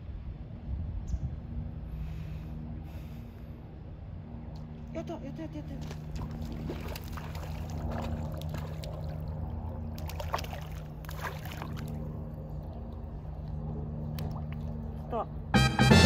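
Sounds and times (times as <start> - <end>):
steady low hum: 0.0 - 16.0
fish splashing at water surface: 5.9 - 12.1.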